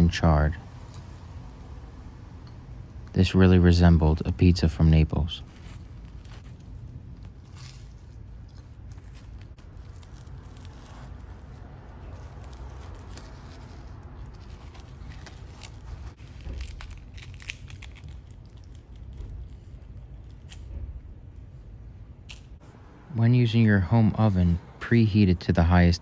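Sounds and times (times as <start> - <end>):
low rumble: 0.0 - 24.9
pizza crust crackling: 5.2 - 20.8
dough tearing: 5.4 - 20.9.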